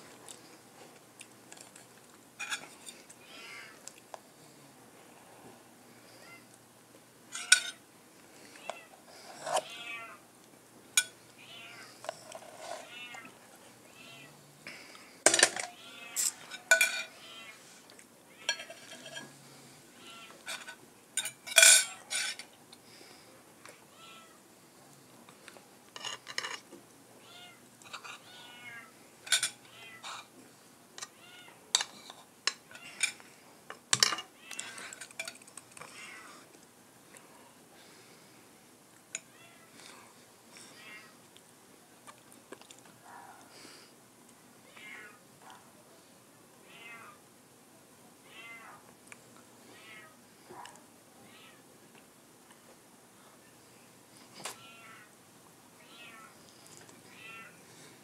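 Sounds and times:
cutlery clinking on plate: 7.4s - 7.8s, 15.3s - 17.1s, 18.5s - 19.3s, 20.5s - 22.5s
cat meowing: 9.6s - 10.2s, 11.4s - 11.9s, 23.9s - 24.4s, 46.7s - 47.2s, 48.2s - 48.8s, 54.6s - 55.1s, 55.8s - 56.3s, 57.1s - 57.6s.

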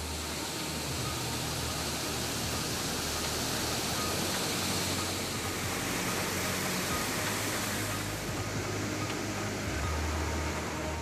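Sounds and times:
water rushing over spillway: 0.0s - 11.0s.

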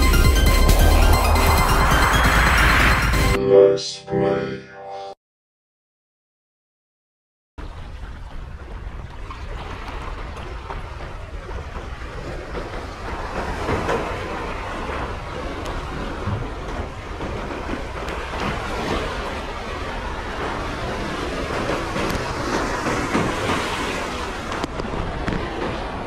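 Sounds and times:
waves breaking over rocks: 7.6s - 26.0s.

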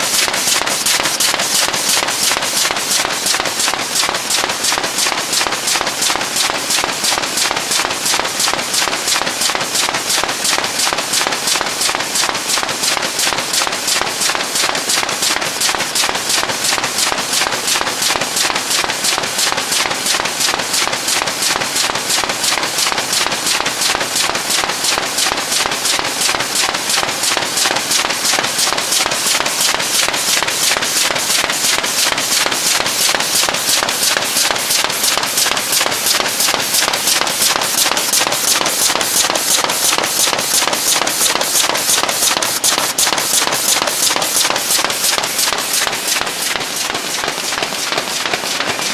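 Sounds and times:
sharp rhythmic machine knocks: 0.0s - 48.9s
steady machine noise: 0.0s - 48.9s.

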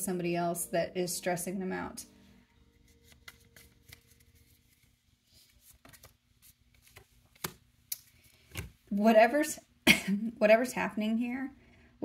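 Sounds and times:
playing cards clicking and rustling: 2.8s - 8.8s.

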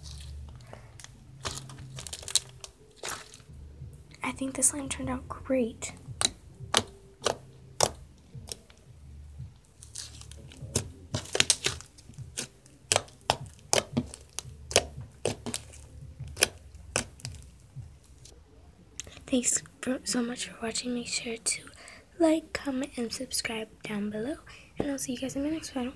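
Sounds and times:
slime squished by hand: 0.0s - 3.5s, 6.1s - 8.7s, 9.8s - 18.3s.

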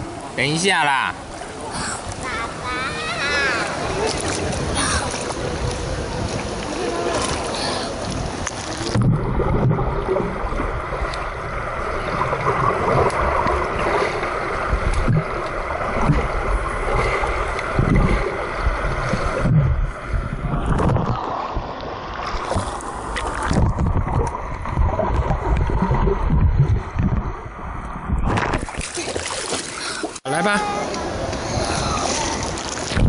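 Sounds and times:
underwater rushing and gurgling: 0.0s - 33.0s
underwater swimming thumps: 14.7s - 27.4s.

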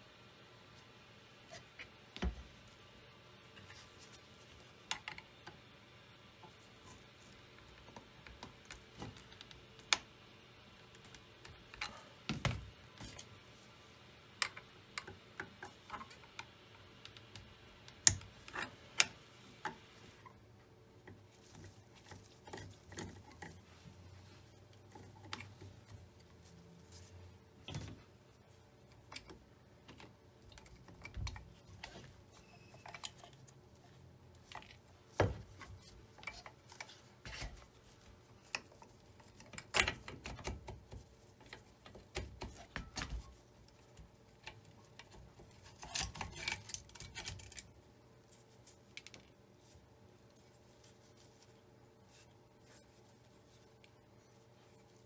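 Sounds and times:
metal parts and screwdriver clicking: 44.3s - 47.8s.

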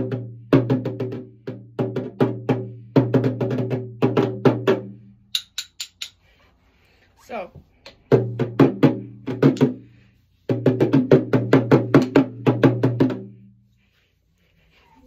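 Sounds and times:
drumsticks clicking together: 5.3s - 6.3s
toy drum struck with sticks: 5.3s - 6.3s.

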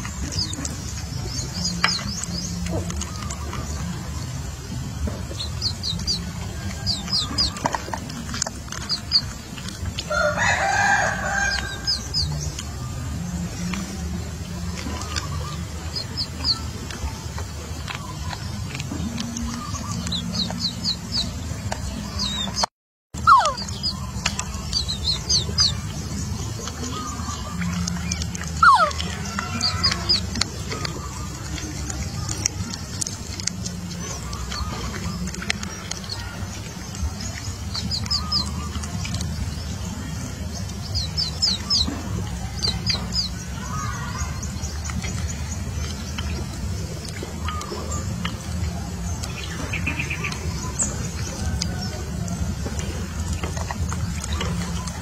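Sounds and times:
chick peeping: 0.0s - 55.0s
small animals chirping: 0.0s - 55.0s
steady low rumble: 0.0s - 55.0s
rooster crowing: 10.1s - 12.0s
whimper-like animal cry: 23.2s - 23.7s, 28.6s - 29.0s.

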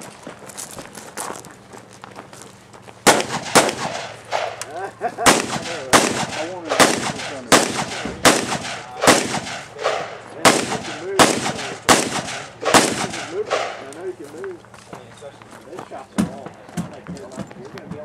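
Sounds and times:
gunshots: 3.1s - 13.9s.

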